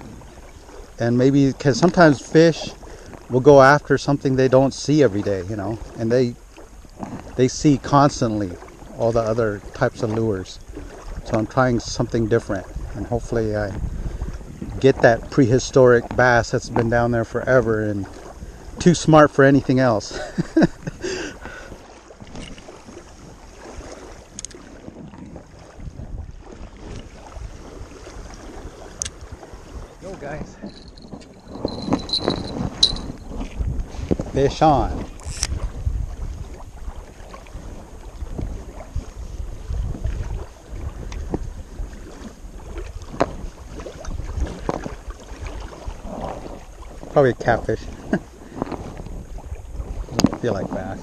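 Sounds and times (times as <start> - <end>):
lake water lapping: 0.0 - 51.0
wind buffeting microphone: 0.0 - 51.0
fishing reel clicking: 35.2 - 35.5.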